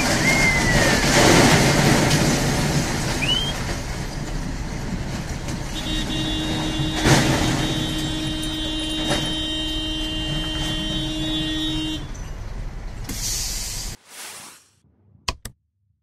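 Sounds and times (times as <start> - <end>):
short hiss: 13.1 - 14.8.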